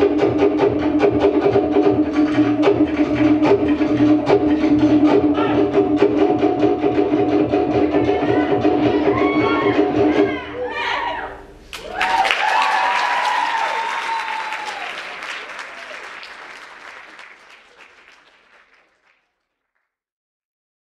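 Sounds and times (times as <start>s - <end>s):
people cheering: 8.2s - 19.2s
audience applauding: 11.7s - 19.6s.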